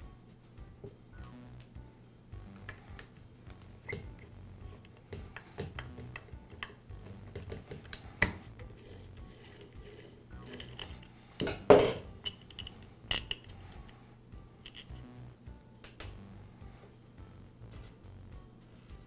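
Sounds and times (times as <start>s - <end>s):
hex key clicking on metal screws: 12.2s - 13.9s, 14.6s - 15.0s.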